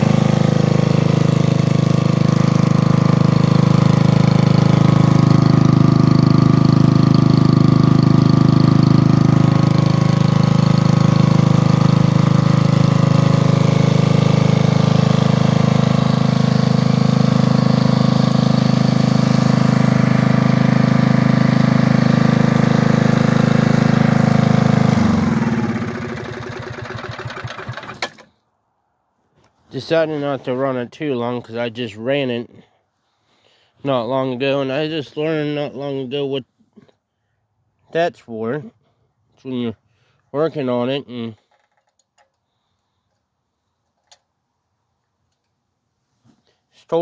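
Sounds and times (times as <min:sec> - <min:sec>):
generator engine running: 0:00.0 - 0:28.3.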